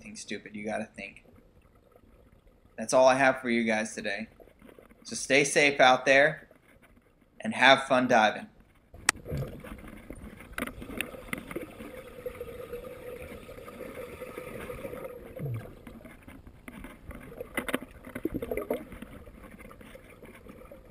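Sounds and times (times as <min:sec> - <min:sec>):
sharp clicks and knocks: 0:08.6 - 0:11.9, 0:15.4 - 0:20.6
steady hum: 0:08.8 - 0:20.9
air bubbling underwater: 0:10.8 - 0:16.0, 0:18.2 - 0:18.9.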